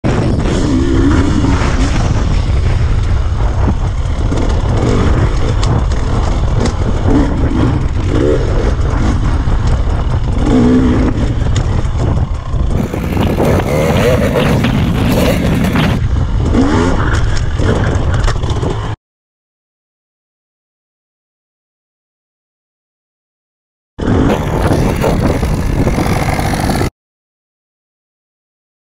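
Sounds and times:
two-stroke engine revving: 3.9s - 17.8s, 24.1s - 26.9s.

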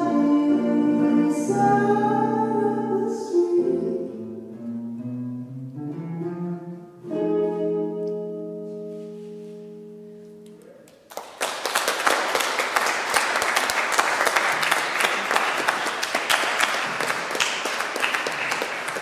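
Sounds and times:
audience applauding: 10.9s - 19.0s.

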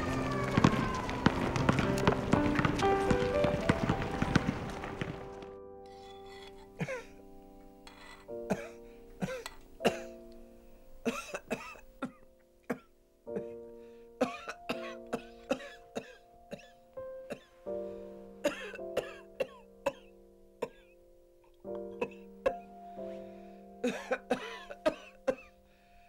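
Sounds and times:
elderly woman coughing: 6.0s - 7.2s, 7.9s - 10.2s, 11.1s - 13.6s, 14.2s - 16.7s, 18.4s - 20.9s, 23.8s - 25.6s.

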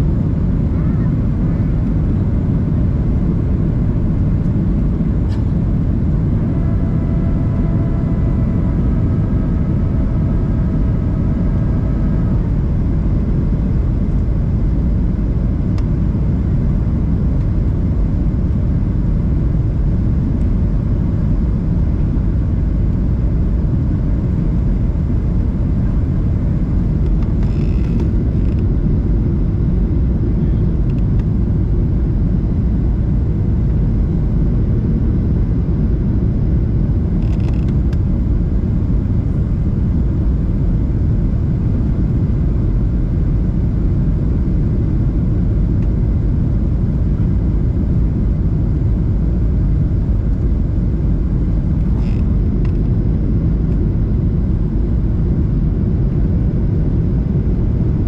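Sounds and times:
airplane cabin engine rumble: 0.0s - 58.0s
faint steady whine: 0.0s - 58.0s.

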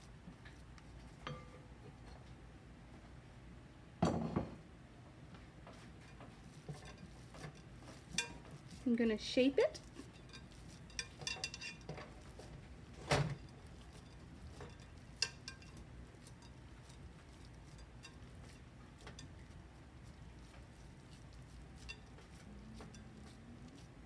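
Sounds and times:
hands handling raw meat: 5.7s - 24.0s.

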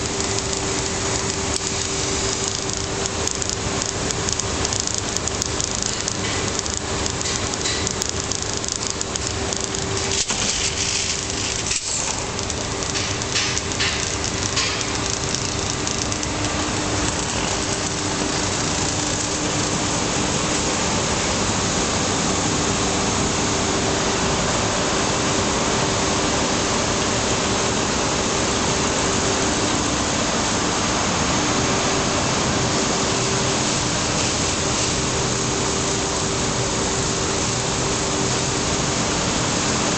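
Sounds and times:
clicks and crackling: 0.0s - 20.6s
extrusion machine humming: 0.0s - 39.9s.

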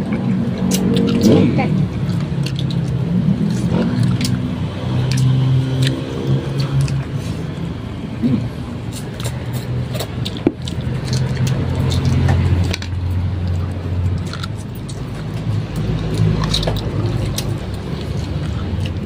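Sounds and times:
chewing and lip-smacking: 0.0s - 7.1s, 8.8s - 19.0s.

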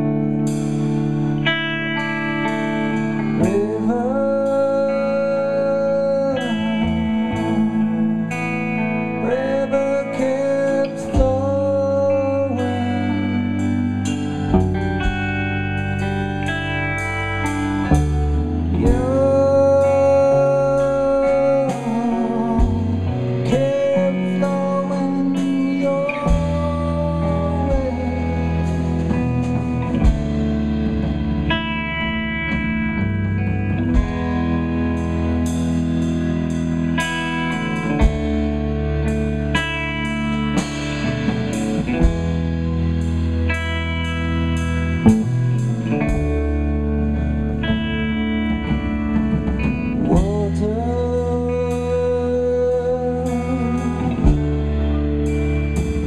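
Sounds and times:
electric guitar: 0.0s - 56.0s
live rock band playing: 0.0s - 56.0s.

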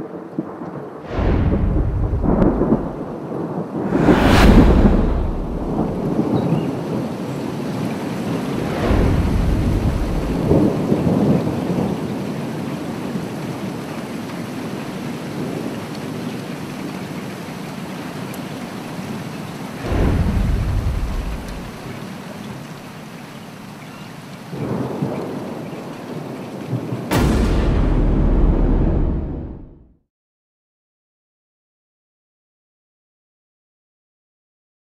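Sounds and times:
steady rain: 0.0s - 4.2s, 5.2s - 27.6s
sharp thunderclap: 1.0s - 6.6s, 8.4s - 11.6s, 19.8s - 22.0s, 26.9s - 30.0s
thunder rolling: 1.0s - 6.6s, 8.4s - 11.8s, 19.8s - 22.1s, 26.9s - 29.9s.

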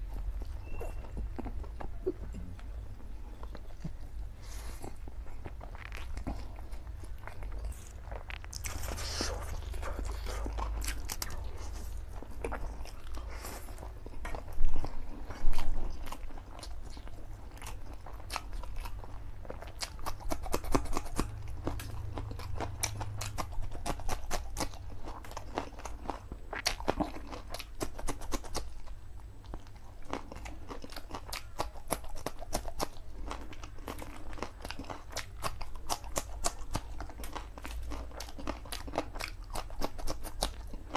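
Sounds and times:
crunching chillies: 0.0s - 40.9s
person slurping and chewing: 4.4s - 16.7s.

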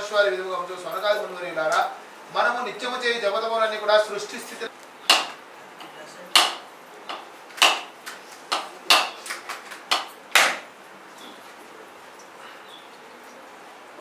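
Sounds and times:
coconut being struck: 5.0s - 9.3s, 9.9s - 10.7s.

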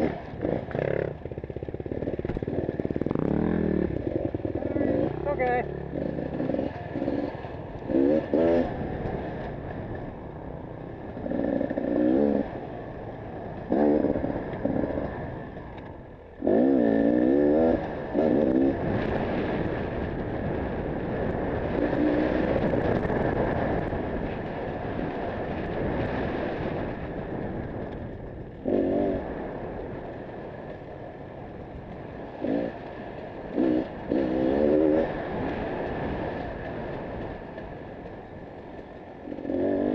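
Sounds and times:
dirt bike engine revving: 0.0s - 9.4s, 11.1s - 12.8s, 13.6s - 15.2s, 16.4s - 20.1s, 21.4s - 23.7s, 28.6s - 29.5s, 32.4s - 32.9s, 33.5s - 36.4s, 39.2s - 39.9s
wind noise: 0.0s - 39.9s.

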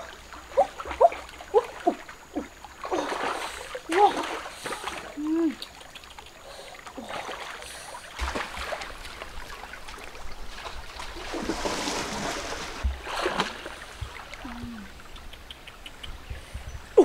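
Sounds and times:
splashes of wading: 0.0s - 16.2s
river water flowing: 0.0s - 17.0s.

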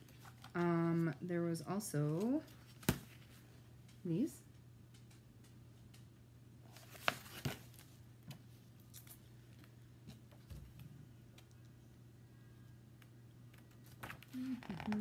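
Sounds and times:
faint steady hum: 0.0s - 15.0s
paper pages rustling: 6.7s - 8.0s.

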